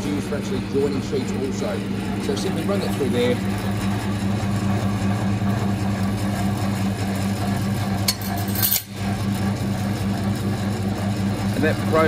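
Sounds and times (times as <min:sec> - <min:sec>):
machine electric hum: 0:00.0 - 0:12.0
high metallic scrape: 0:08.1 - 0:09.0.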